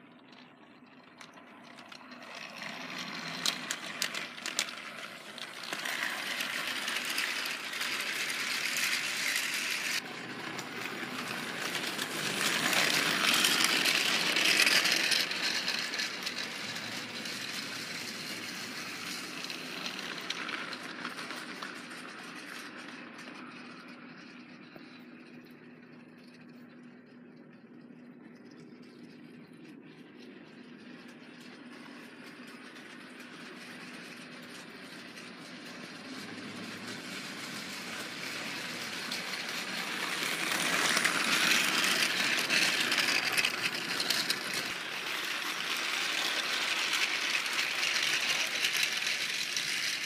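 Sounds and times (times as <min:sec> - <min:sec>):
toy train motor whirring: 0:00.0 - 0:50.0.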